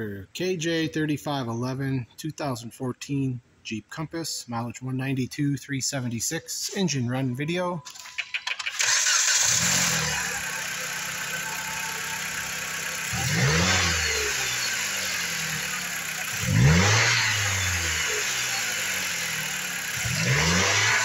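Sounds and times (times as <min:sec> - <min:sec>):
car engine starting and idling: 0:06.3 - 0:21.0
engine revving: 0:07.9 - 0:21.0.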